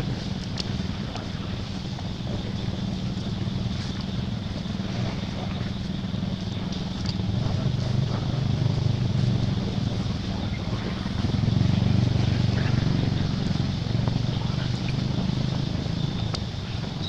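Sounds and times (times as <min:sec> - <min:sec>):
low engine-like drone: 0:00.0 - 0:17.0
faint clicks: 0:06.6 - 0:07.3, 0:16.2 - 0:16.5.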